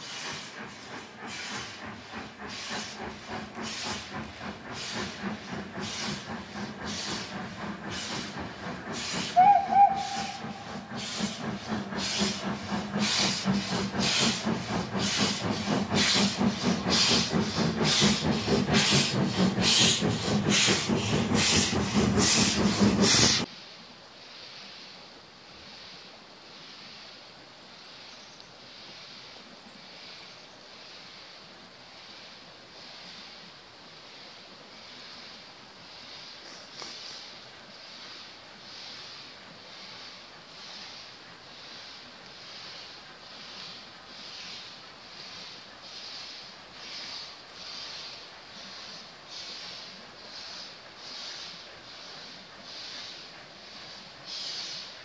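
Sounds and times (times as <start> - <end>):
steam locomotive chuffing: 0.0 - 23.6, 33.9 - 55.0
steam whistle blast: 9.3 - 10.8
faint steady hiss: 23.5 - 55.0.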